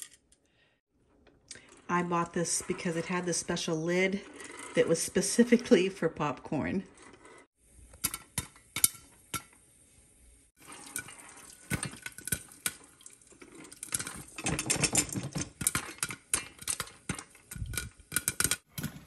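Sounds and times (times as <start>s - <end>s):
popcorn popping: 7.8s - 9.6s, 10.6s - 19.0s.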